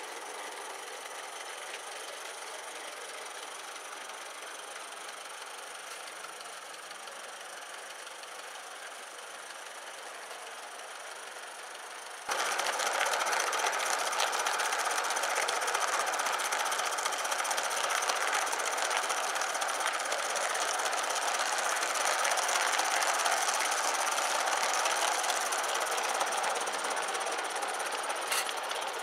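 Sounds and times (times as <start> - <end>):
model steam locomotive chuffing: 0.0 - 29.0
running-gear clatter: 12.3 - 29.0.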